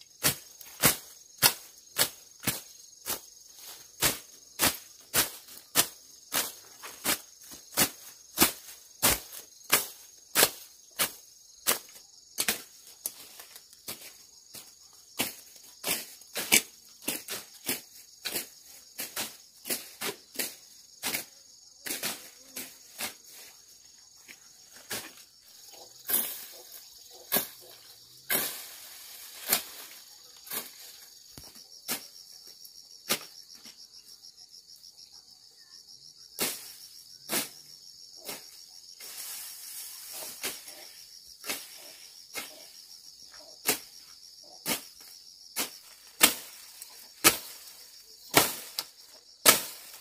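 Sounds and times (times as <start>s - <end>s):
insects droning: 0.0s - 50.0s
machete slashing weeds: 27.2s - 30.8s, 45.6s - 50.0s.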